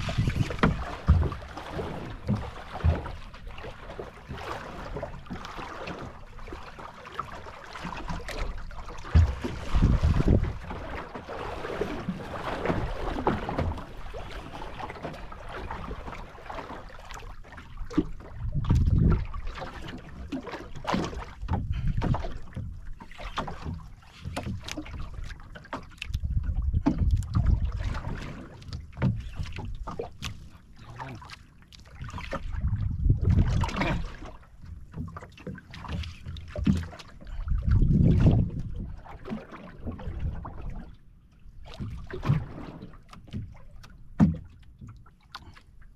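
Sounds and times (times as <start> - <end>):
water splashing against boat hull: 0.0 - 45.9
wind gusting on microphone: 9.7 - 10.6, 32.6 - 33.8, 37.6 - 38.8.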